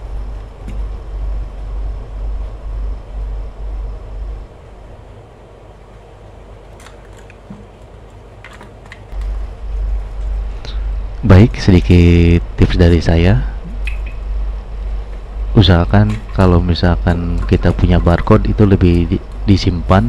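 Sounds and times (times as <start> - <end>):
low rumble on microphone: 0.0 - 5.4, 9.2 - 20.0.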